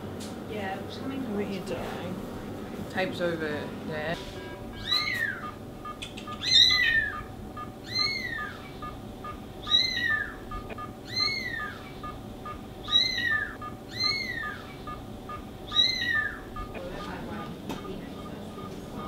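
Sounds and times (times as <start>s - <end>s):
patient monitor beeps: 4.1s - 19.0s
high meow-like animal calls: 4.8s - 8.8s, 9.6s - 12.0s, 12.8s - 14.8s, 15.7s - 17.1s.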